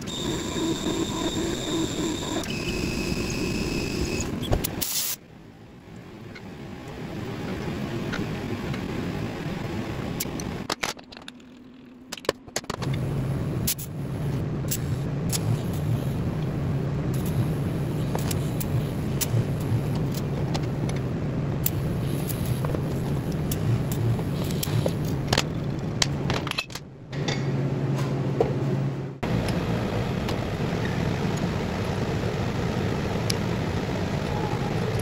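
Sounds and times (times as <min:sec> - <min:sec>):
welding equipment humming: 0:00.0 - 0:05.2, 0:12.6 - 0:25.3, 0:29.2 - 0:35.0.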